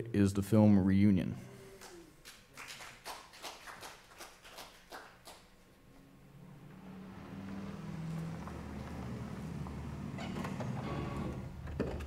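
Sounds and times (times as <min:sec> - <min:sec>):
people clapping: 0:01.8 - 0:05.6.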